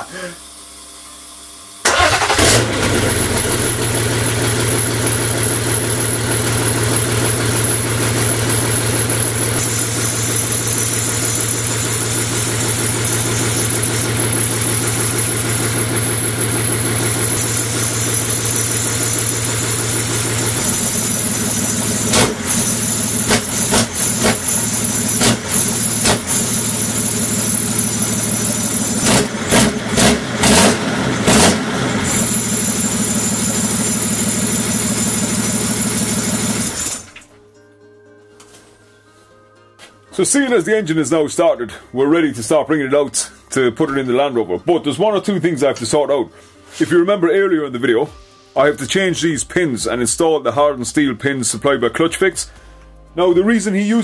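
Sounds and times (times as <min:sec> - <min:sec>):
rough diesel engine running: 0:01.8 - 0:37.1.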